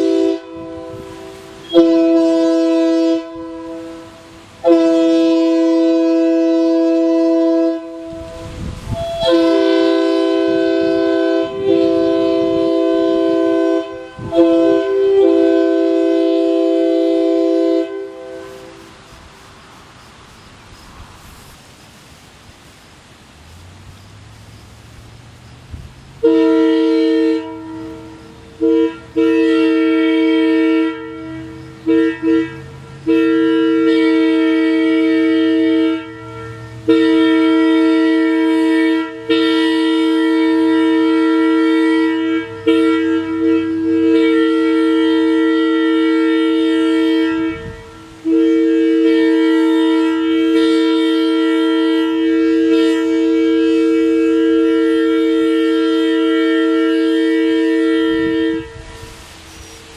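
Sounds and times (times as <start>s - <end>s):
locomotive air horn blasts: 0.0s - 19.4s, 26.2s - 59.9s.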